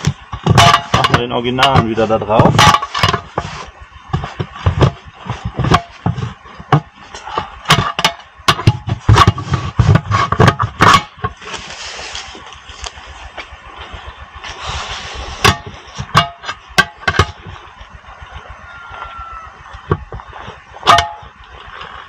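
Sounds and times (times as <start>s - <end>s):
metal knocks and scrapes: 0.0s - 18.5s, 19.8s - 22.0s
steady hiss: 11.3s - 16.6s.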